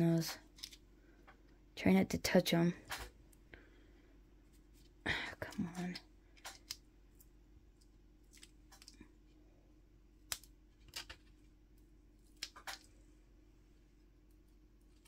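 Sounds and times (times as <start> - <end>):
paper clicks and rustles: 10.3 - 11.4.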